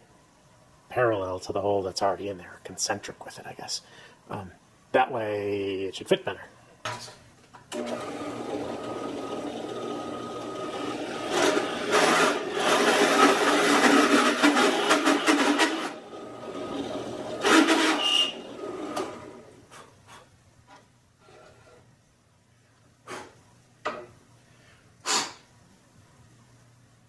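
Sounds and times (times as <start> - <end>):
drill press motor running: 7.7 - 19.5
drill bit cutting wood: 7.8 - 19.3.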